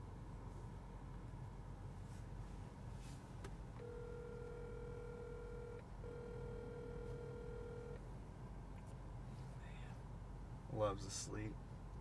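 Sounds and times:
low steady hum: 0:00.0 - 0:12.0
phone ringback tone: 0:03.8 - 0:08.0.

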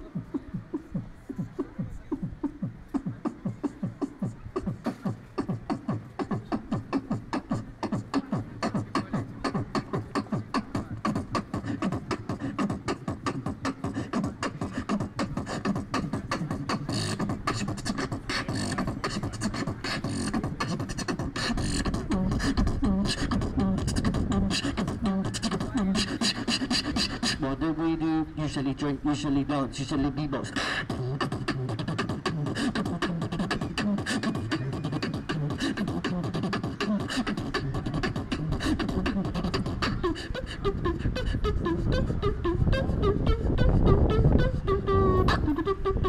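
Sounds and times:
person beatboxing: 0:00.0 - 0:46.0.

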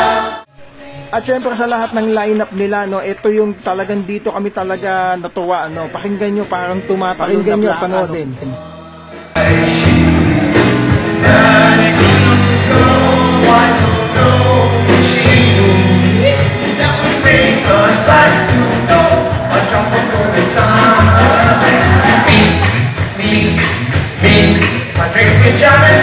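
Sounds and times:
male vocal group singing: 0:00.0 - 0:01.6, 0:05.6 - 0:26.0
band with drums and guitar: 0:08.5 - 0:26.0.

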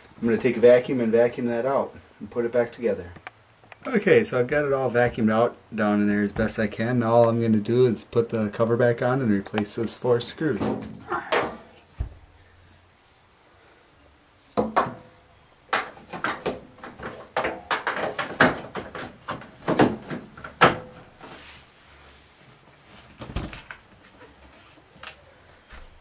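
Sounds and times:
plastic cover knocking and clattering: 0:14.6 - 0:15.1, 0:15.7 - 0:21.0.

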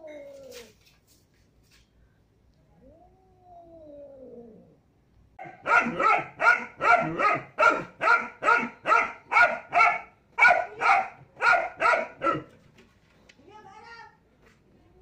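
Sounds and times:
dog barking: 0:05.4 - 0:12.6.

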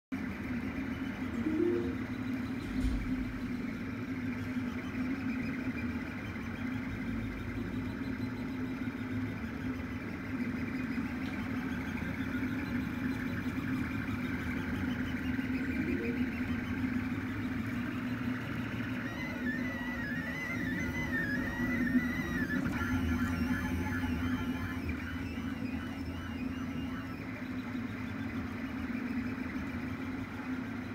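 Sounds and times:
printer motors and fan humming: 0:00.1 - 0:30.9
warbling whine: 0:00.9 - 0:03.9, 0:11.5 - 0:30.9.

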